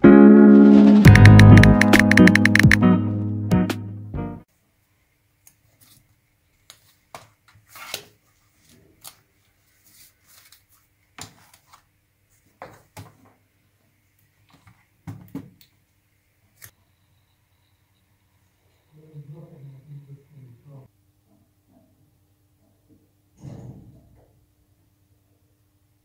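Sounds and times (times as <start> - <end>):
notebook rustling: 5.7 - 13.0.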